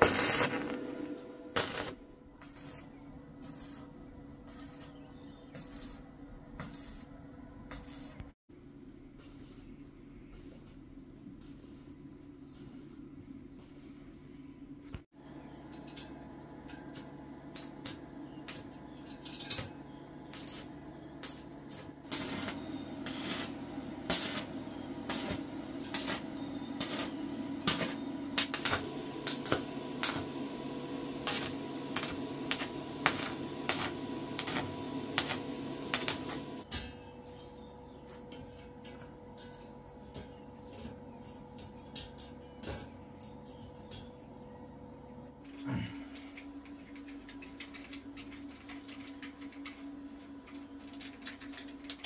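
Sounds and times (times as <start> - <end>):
arc welding crackle and pops: 0.0 - 8.4, 15.7 - 37.6, 46.1 - 52.0.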